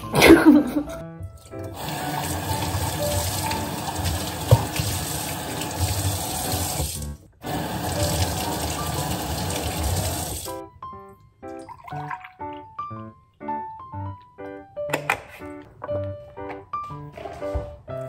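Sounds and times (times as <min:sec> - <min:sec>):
tap water running into sink: 0:01.2 - 0:10.6.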